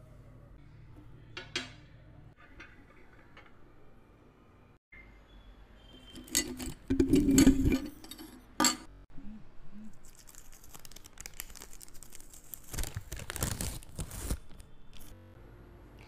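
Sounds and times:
paper rustling: 0:10.0 - 0:15.1.

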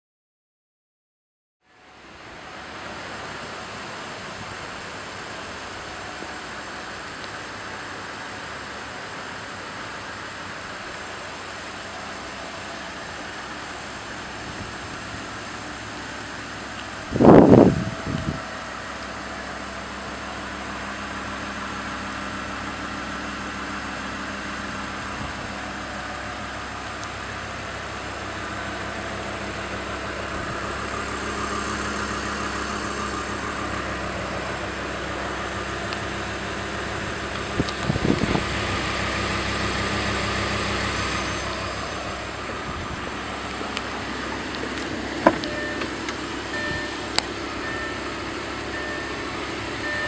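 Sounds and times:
sports car engine idling: 0:01.6 - 0:50.0
engine revving: 0:13.9 - 0:50.0.

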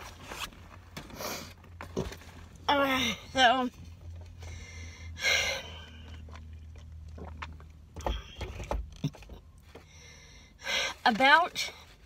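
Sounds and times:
car interior hum: 0:00.0 - 0:12.0
person breathing: 0:04.4 - 0:06.1, 0:09.8 - 0:11.0.

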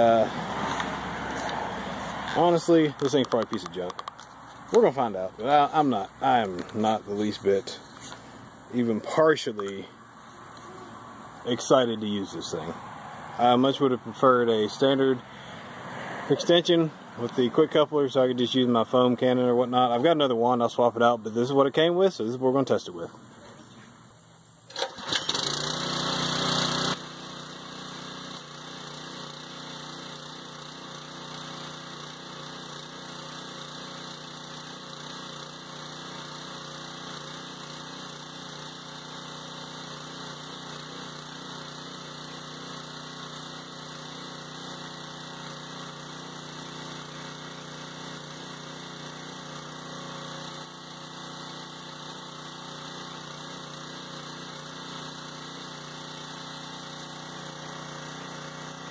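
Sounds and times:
water spraying from nozzle: 0:00.0 - 0:09.9, 0:25.4 - 0:58.9
pressure washer engine running: 0:00.0 - 0:23.3, 0:24.6 - 0:58.9.

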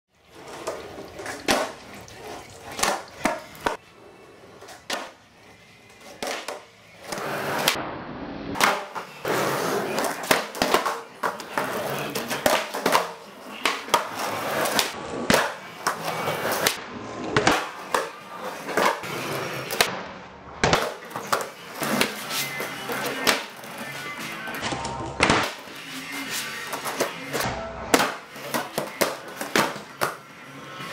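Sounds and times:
skateboard wheels rolling and scraping: 0:00.1 - 0:30.9
skateboard deck clacking on concrete: 0:09.9 - 0:16.8.

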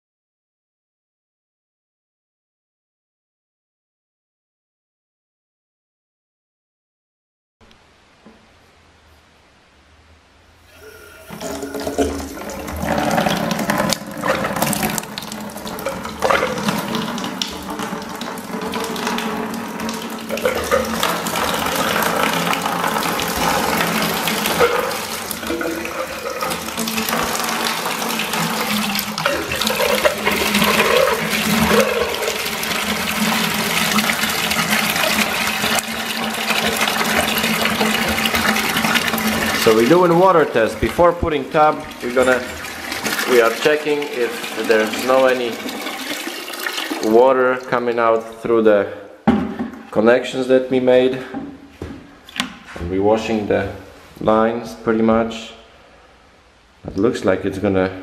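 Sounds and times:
water pouring into plastic bucket: 0:10.7 - 0:48.4.

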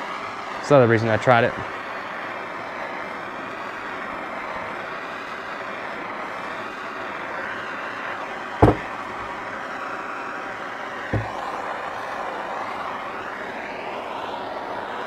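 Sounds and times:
propane torch hissing: 0:00.0 - 0:15.0
sharp knock: 0:08.6 - 0:09.3, 0:11.2 - 0:11.4.

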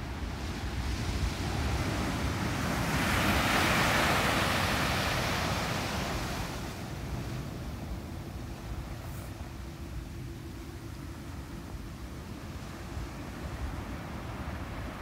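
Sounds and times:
steady low surf rumble: 0:00.0 - 0:15.0
wave crashing on sand: 0:00.3 - 0:06.8.

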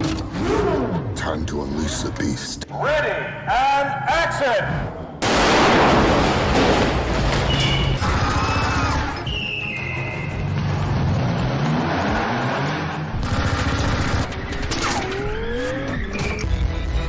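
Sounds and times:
gunshots: 0:05.2 - 0:09.0, 0:13.2 - 0:14.3
tires squealing: 0:07.5 - 0:13.1.

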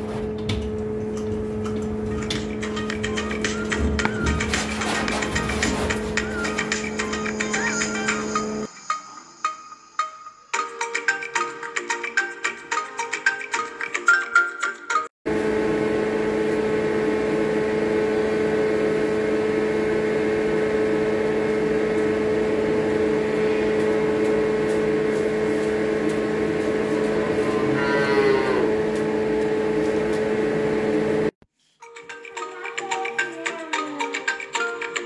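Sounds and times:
machine hum: 0:00.0 - 0:08.7, 0:15.3 - 0:31.4
calf mooing: 0:27.5 - 0:28.8.

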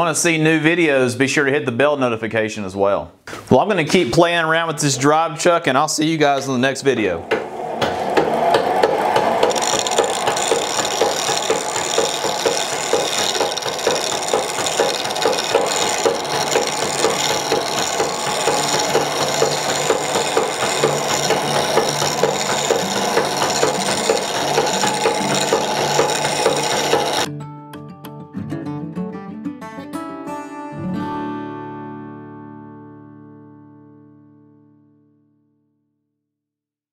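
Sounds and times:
treadle lathe knocking: 0:07.3 - 0:27.3
turning tool scraping wood: 0:08.8 - 0:27.3.

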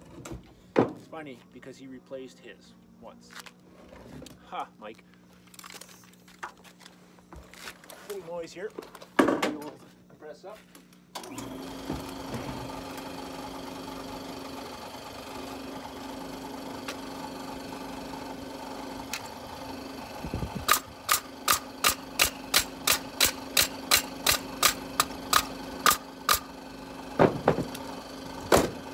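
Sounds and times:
air compressor running: 0:11.2 - 0:28.9
pneumatic stapler firing: 0:20.6 - 0:26.5, 0:28.4 - 0:28.8.

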